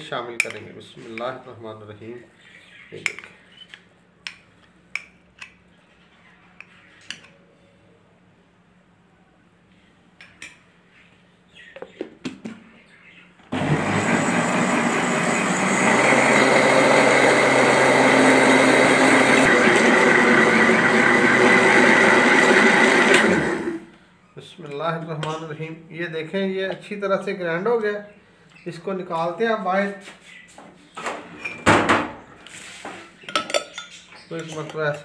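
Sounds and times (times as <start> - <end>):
electric blender motor running: 13.5 - 23.9.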